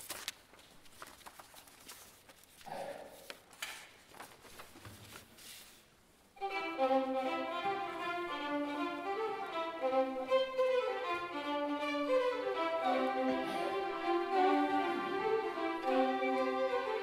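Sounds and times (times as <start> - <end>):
faint knocks and rustles: 0.6 - 5.8
string orchestra playing: 6.4 - 17.0.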